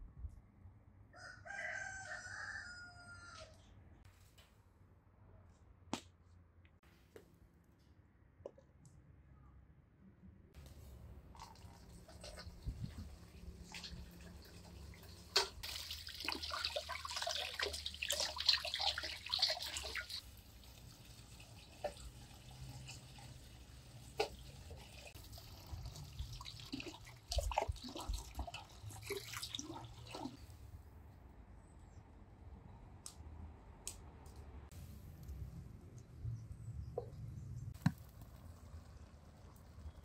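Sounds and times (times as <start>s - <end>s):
tap water running and splashing: 11.3s - 30.5s.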